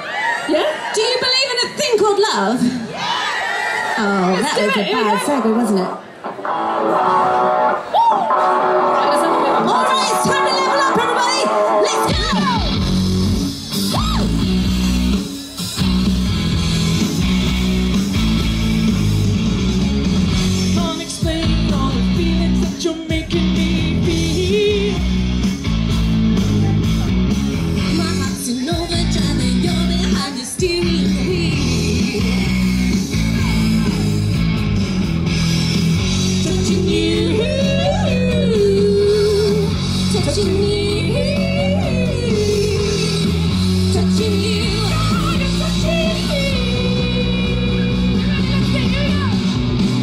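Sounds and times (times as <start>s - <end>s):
amplified backing music: 5.1s - 50.0s
rock song over loudspeakers: 5.4s - 50.0s
person singing through a pa: 36.4s - 43.3s.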